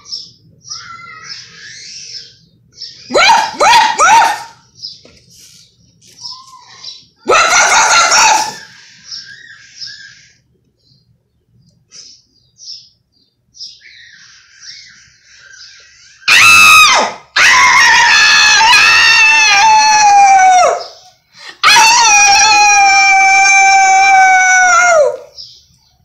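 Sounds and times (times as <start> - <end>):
faint high chirping: 0.0 - 16.6.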